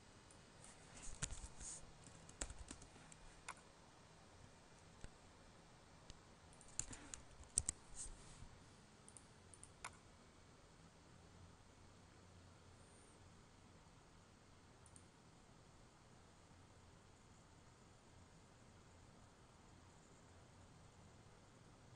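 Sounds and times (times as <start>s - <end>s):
keyboard typing: 1.0s - 3.7s, 6.5s - 8.1s, 9.1s - 10.0s
mouse clicks: 1.0s - 3.7s, 6.1s - 8.1s, 9.1s - 10.0s.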